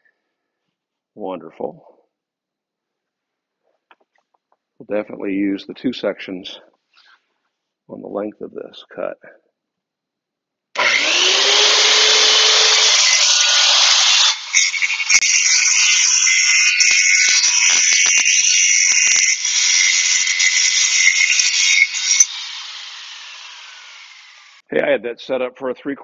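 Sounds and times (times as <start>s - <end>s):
circular saw whining: 10.8s - 24.6s
saw cutting through panel: 10.8s - 24.6s.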